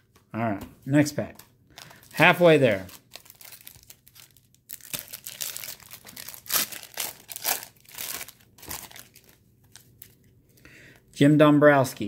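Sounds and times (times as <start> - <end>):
wrapper tearing and crinkling: 1.8 - 10.2.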